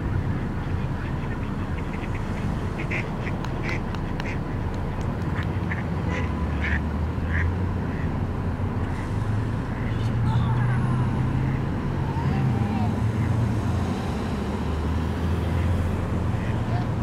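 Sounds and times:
goose calling: 0.4 - 4.6.

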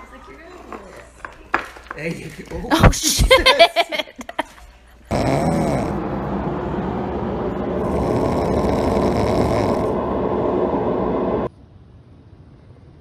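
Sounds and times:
puppy snoring: 5.1 - 6.4, 7.7 - 10.0.

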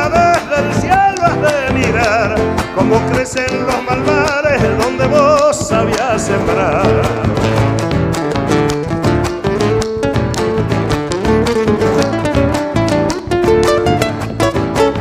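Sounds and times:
steady rhythmic beat: 0.0 - 15.0
strummed guitars: 0.0 - 15.0.

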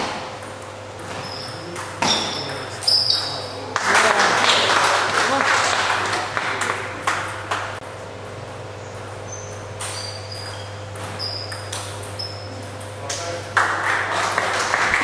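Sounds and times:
shoes squeaking on floor: 1.0 - 3.6, 8.8 - 12.8
applause and crowd noise: 3.7 - 7.8, 13.5 - 15.0.

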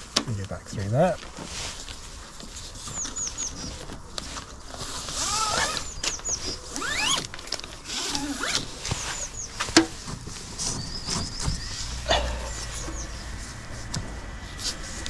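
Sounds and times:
rising squeaks: 5.1 - 9.7, 10.4 - 14.2.

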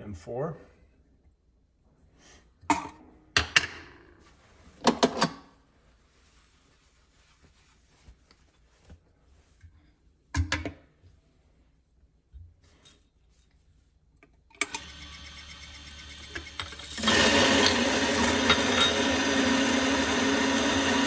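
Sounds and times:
grinder parts knocking and clattering: 16.3 - 19.3
portafilter clattering: 16.6 - 21.0.

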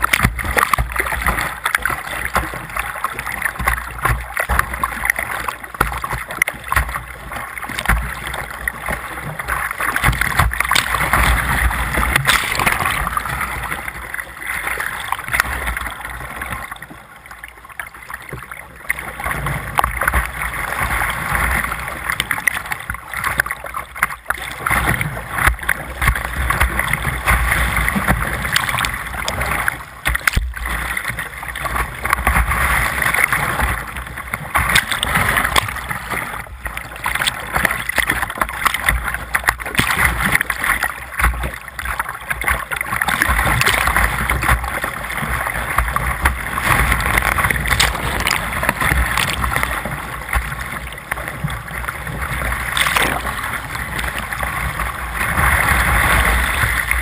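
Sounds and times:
waves splashing over kayak bow: 0.0 - 57.0
whitewater rushing: 6.1 - 16.2, 24.6 - 57.0.

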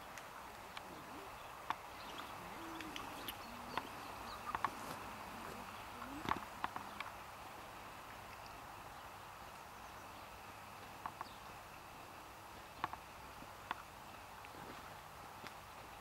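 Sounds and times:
goldfinch call notes: 0.8 - 7.1.

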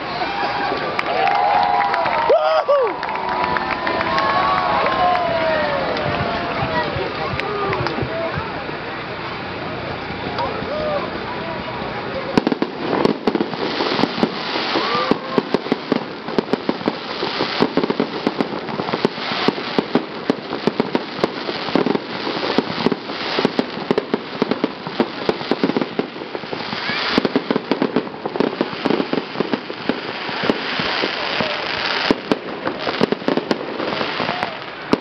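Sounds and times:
fireworks bursting: 0.0 - 35.0
crackle of rapid pops: 12.4 - 35.0.

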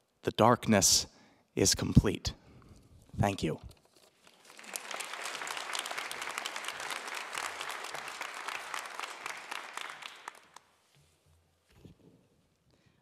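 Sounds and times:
audience applauding: 4.3 - 10.8.

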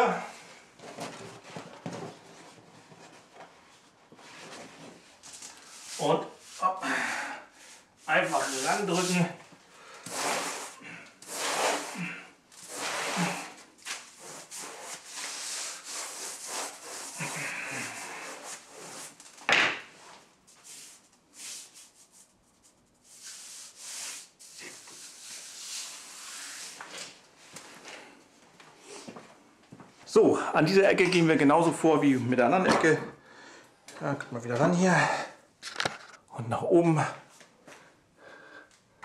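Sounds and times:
wallpaper rustling: 7.6 - 29.3.

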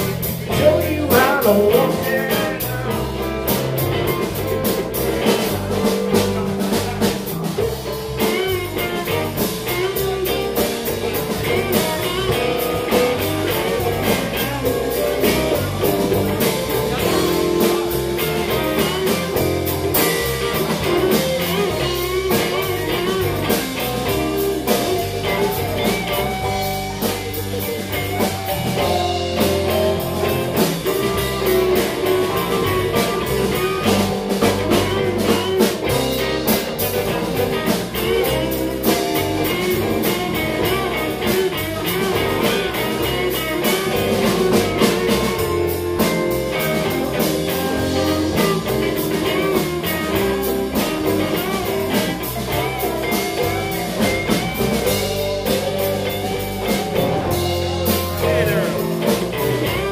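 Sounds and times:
blues band playing: 0.0 - 59.9
lead guitar bending notes: 0.0 - 59.9.

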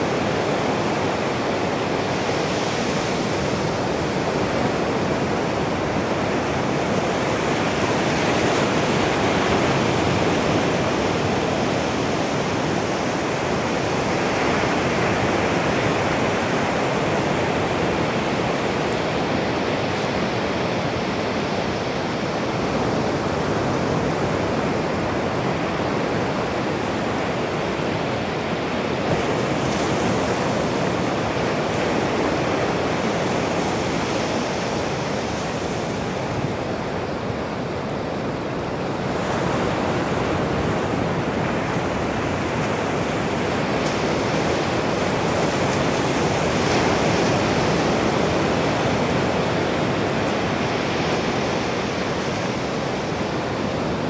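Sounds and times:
ocean waves breaking on beach: 0.0 - 54.0.

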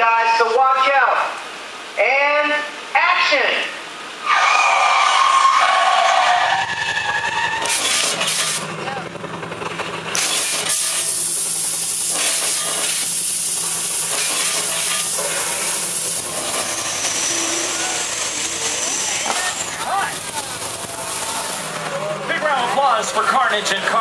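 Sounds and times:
fireballs bursting: 6.5 - 22.8
smoke jets hissing: 10.1 - 22.0.

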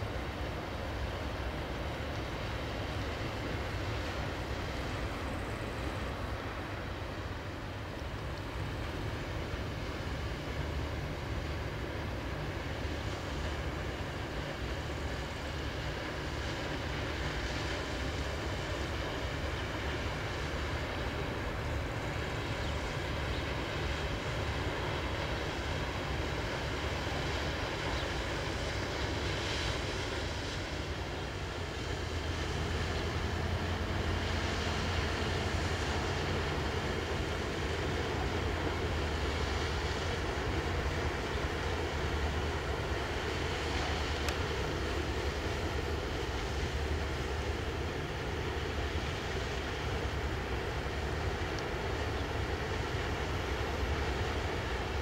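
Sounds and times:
barge diesel engine drone: 0.0 - 55.0.

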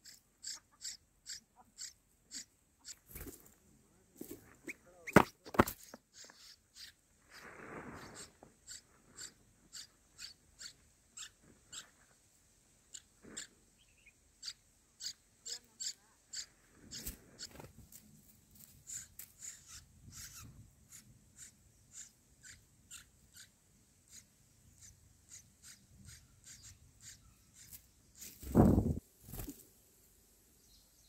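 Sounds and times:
nestlings begging cheeps: 0.0 - 3.4, 4.6 - 12.0, 12.9 - 17.7, 18.8 - 29.6
rustling of nest: 3.0 - 6.4, 7.2 - 9.7, 27.6 - 29.8.

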